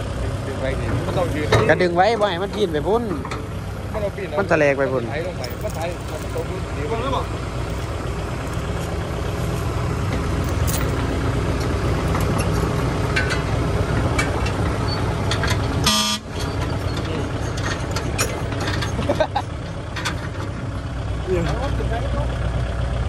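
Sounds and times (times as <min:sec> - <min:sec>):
heavy diesel machinery running: 0:00.0 - 0:23.0
short horn toot: 0:15.8 - 0:16.3.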